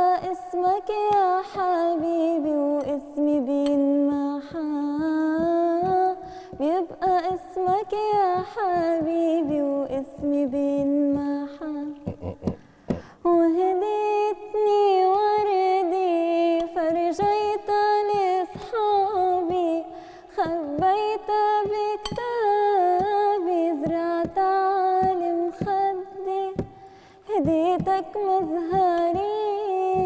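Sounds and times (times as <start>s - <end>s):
woman singing unaccompanied: 0.0s - 12.1s, 13.2s - 30.0s.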